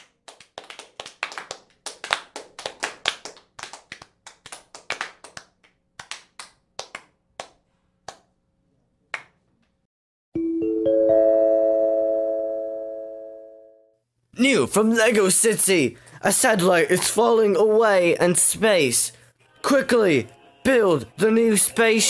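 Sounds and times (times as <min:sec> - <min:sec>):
small group clapping: 0:00.0 - 0:08.4, 0:09.1 - 0:09.7
rising chime notes: 0:10.4 - 0:13.9.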